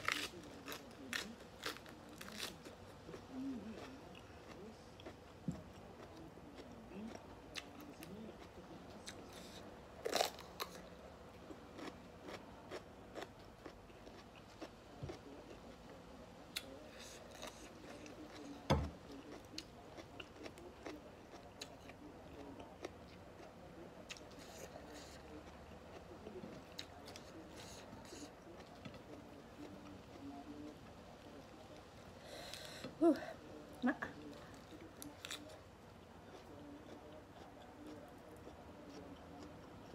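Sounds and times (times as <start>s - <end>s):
person chewing raw vegetables: 0.0s - 2.7s, 11.8s - 15.2s.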